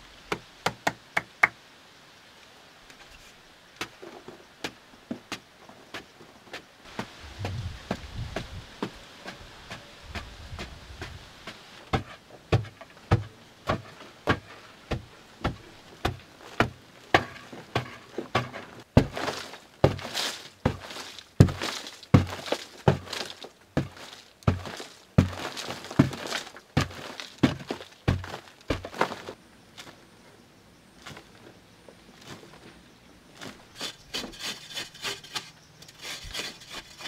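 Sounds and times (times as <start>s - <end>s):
loose soil rustling: 2.2s - 37.0s
digging tool chopping earth: 6.0s - 29.4s.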